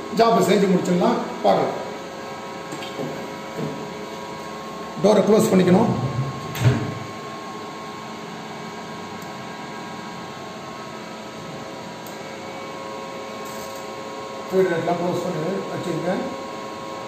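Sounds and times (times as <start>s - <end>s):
machine idle hum with tones: 0.0s - 17.0s
machine guard door thump: 5.9s - 7.0s.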